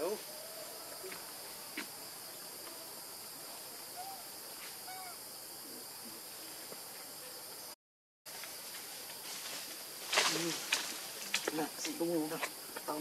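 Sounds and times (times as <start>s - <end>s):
insects droning: 0.0s - 13.0s
faint hoot-like calls: 3.9s - 5.2s.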